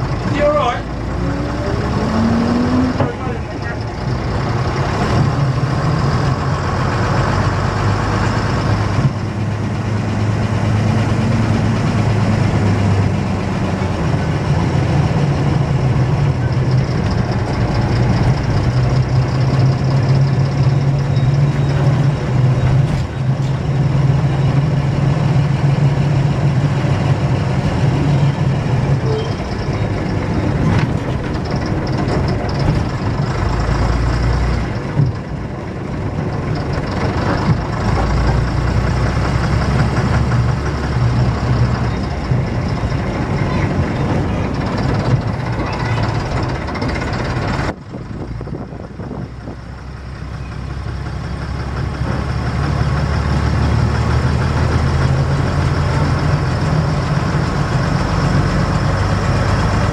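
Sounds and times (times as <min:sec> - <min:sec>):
bus diesel engine running: 0:00.0 - 0:59.9.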